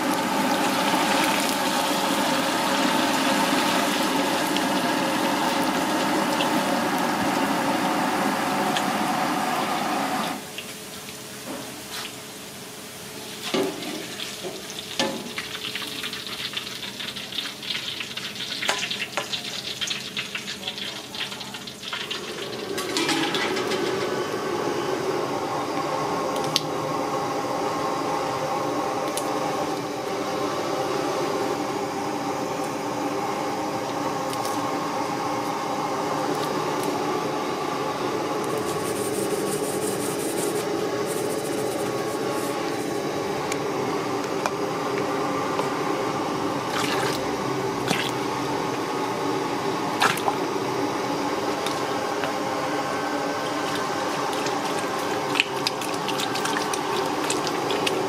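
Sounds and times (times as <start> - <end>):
steady hiss and hum: 24.2 - 58.0
broth being ladled and poured: 53.4 - 58.0.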